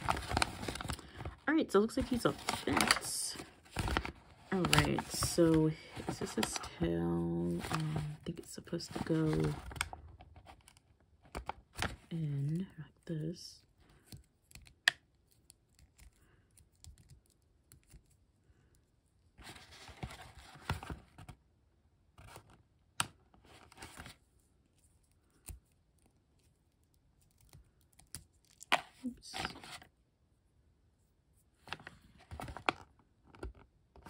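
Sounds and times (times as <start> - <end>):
crinkly plastic rustling: 0.0 - 10.7, 31.6 - 33.6.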